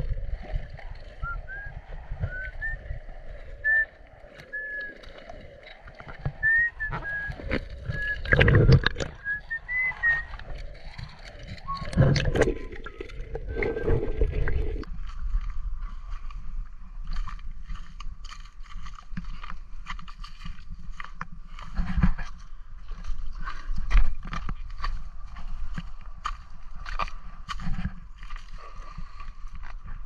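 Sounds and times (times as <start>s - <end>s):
water sloshing and splashing: 0.0s - 16.3s.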